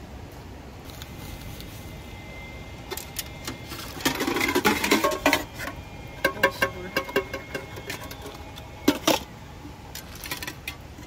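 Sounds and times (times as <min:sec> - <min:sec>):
cook pots clattering: 0:04.0 - 0:09.3.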